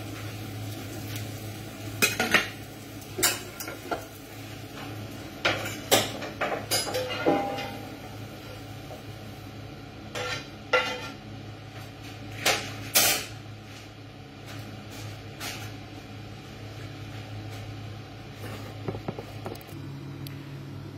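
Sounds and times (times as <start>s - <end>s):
steady low hum: 0.0s - 20.9s
dishes and kitchenware clattering: 3.2s - 4.0s, 5.4s - 7.9s, 10.1s - 11.2s.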